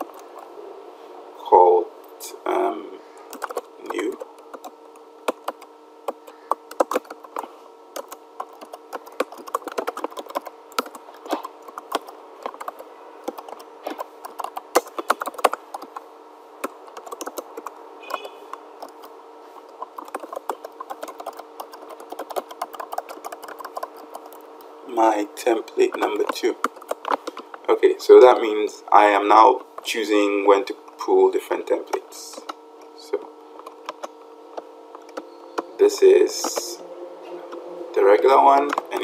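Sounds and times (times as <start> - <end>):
faint steady hum: 0.0 - 39.0
keyboard typing clicks: 3.3 - 16.0, 16.6 - 24.4, 25.8 - 27.4, 33.6 - 34.2, 34.9 - 36.7, 38.6 - 39.0.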